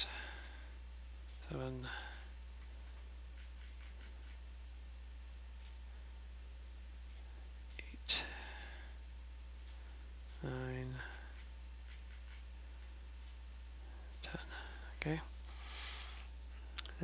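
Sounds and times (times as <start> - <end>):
computer mouse clicks: 2.1 - 4.4, 9.6 - 10.4, 11.1 - 13.4.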